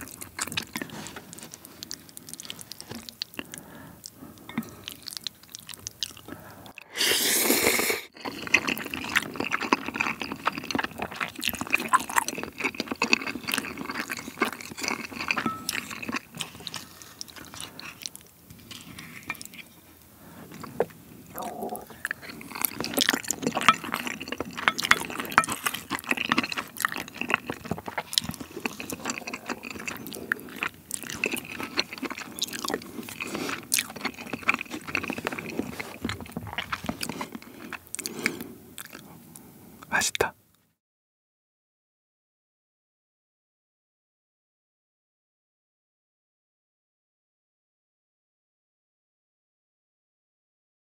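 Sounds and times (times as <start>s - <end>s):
noodle slurp: 6.7s - 16.7s, 20.5s - 38.4s
wet sticky chewing: 7.7s - 39.1s.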